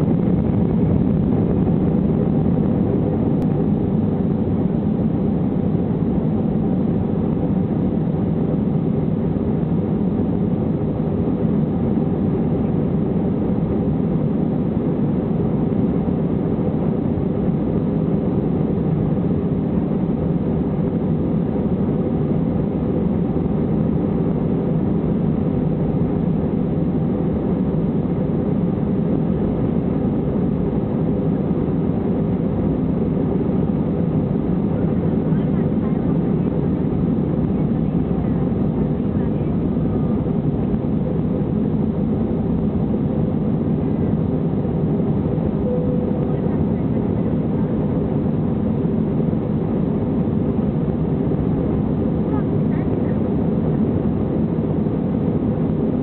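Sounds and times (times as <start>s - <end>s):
undercarriage runway rumble: 0.0s - 5.7s, 28.8s - 55.0s
jet engines at takeoff thrust: 0.0s - 56.0s.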